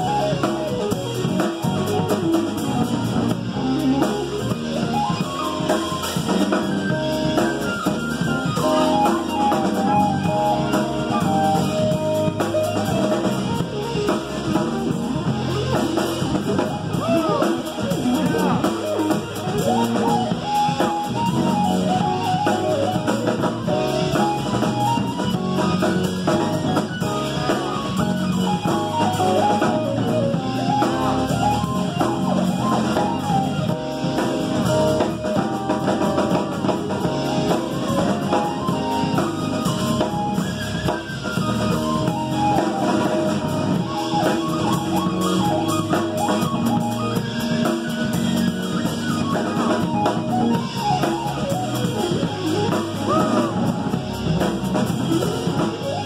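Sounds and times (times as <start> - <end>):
drum kit: 0.0 - 56.0
electric bass: 0.0 - 56.0
small live band instrumental: 0.0 - 56.0.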